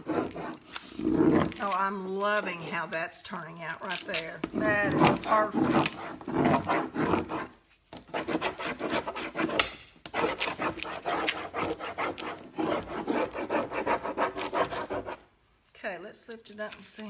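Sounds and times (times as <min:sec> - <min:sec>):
stick scraping on paper: 0:00.0 - 0:02.9, 0:03.8 - 0:15.3.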